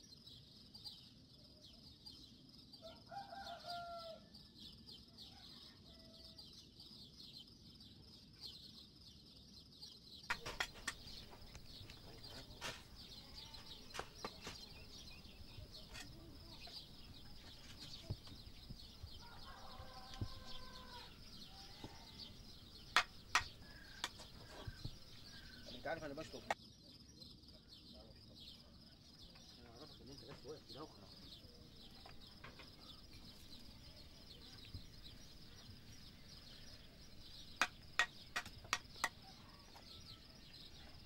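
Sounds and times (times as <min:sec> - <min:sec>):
steady high chirping: 0:06.7 - 0:41.0
sharp knocks: 0:10.3 - 0:11.5, 0:22.9 - 0:25.0, 0:37.6 - 0:39.2
chicken calling: 0:19.2 - 0:22.4.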